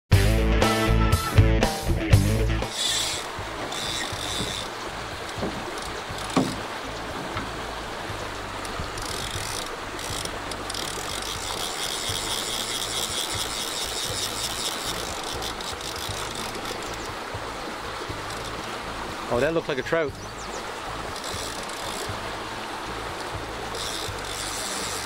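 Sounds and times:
fishing reel drag clicking: 2.6 - 6.4, 8.6 - 17.2, 18.2 - 18.7, 21.0 - 22.2, 23.1 - 25.0.

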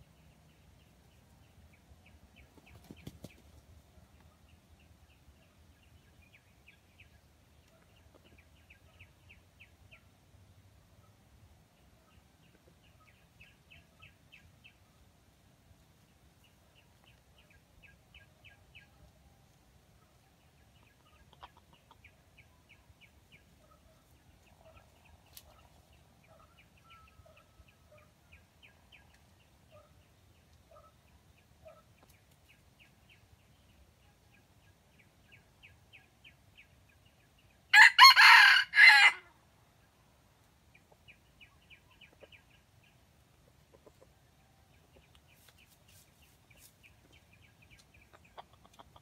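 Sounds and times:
rooster crowing: 37.7 - 39.3.

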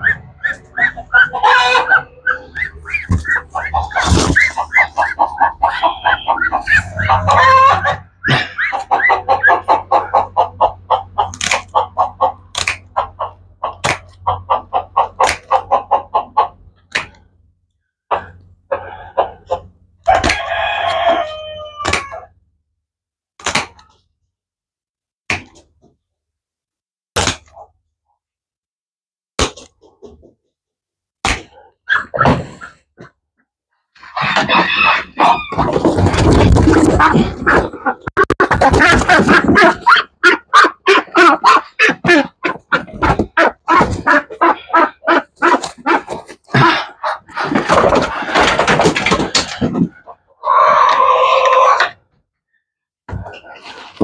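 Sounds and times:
chickens clucking: 0.0 - 17.4, 18.1 - 22.3, 34.0 - 52.0, 53.1 - 54.0
rooster crowing: 1.4 - 2.5, 5.7 - 8.0, 20.1 - 22.3.

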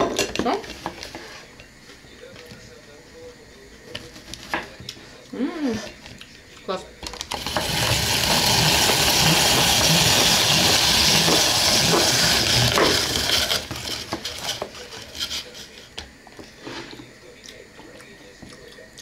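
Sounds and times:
stirring knocks and scrapes: 0.6 - 2.7, 3.8 - 5.2, 7.3 - 18.7
carrot sizzling in a pan: 7.3 - 15.8.

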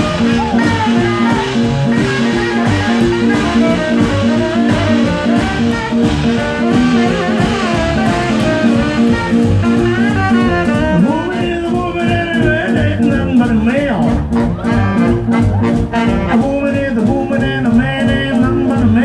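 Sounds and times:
saxophone: 0.0 - 11.6, 14.0 - 16.6
steady drum beat: 0.0 - 19.0
swing band playing: 0.0 - 19.0.

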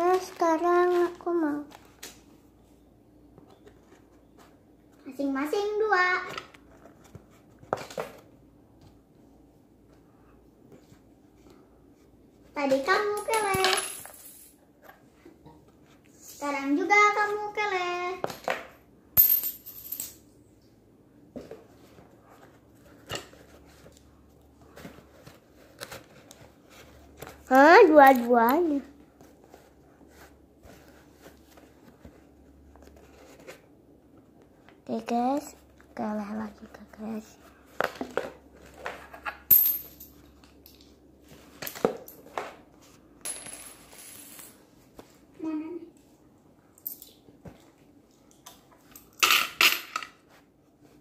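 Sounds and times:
coins clicking and rattling: 13.3 - 14.5, 19.2 - 20.2, 43.3 - 44.6.

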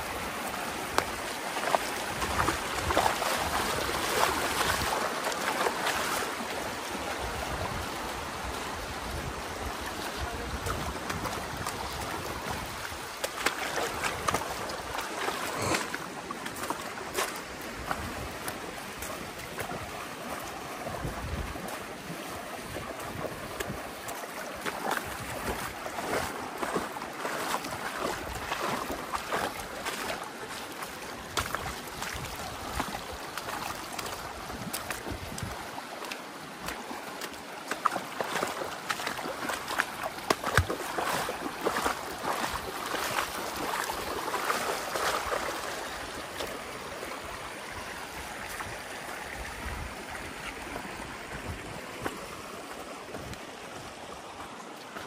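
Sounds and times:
river water rushing: 0.0 - 55.0
water splashes and knocks: 0.0 - 55.0
wind rumble on microphone: 7.0 - 13.2, 17.6 - 24.1, 31.3 - 35.8, 47.3 - 52.5.

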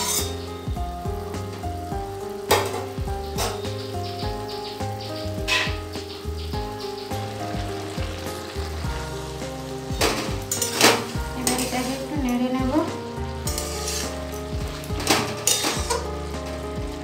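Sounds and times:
metal spatula scraping a pan: 0.0 - 0.5, 5.5 - 5.8, 10.0 - 12.2, 13.4 - 16.1
curry sizzling: 0.0 - 17.0
soft background music: 0.0 - 17.0.

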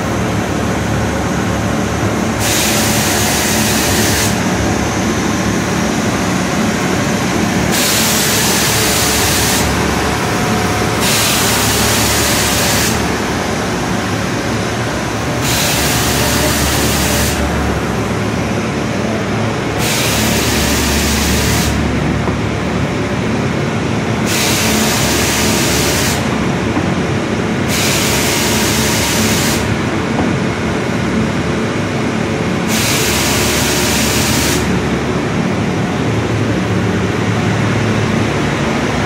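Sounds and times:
belt sander running: 2.1 - 22.5
loud hiss blasts: 2.3 - 5.6, 7.0 - 14.2, 15.1 - 17.8, 19.7 - 21.9, 24.2 - 26.4, 27.6 - 29.8, 32.6 - 34.8.

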